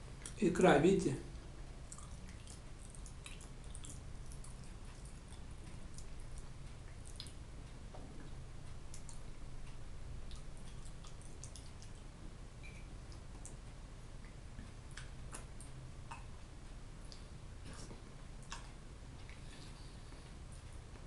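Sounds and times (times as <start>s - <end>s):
steady low hum: 0.0s - 21.0s
wet chewing smacks: 1.8s - 7.4s, 10.3s - 12.1s, 17.0s - 20.7s.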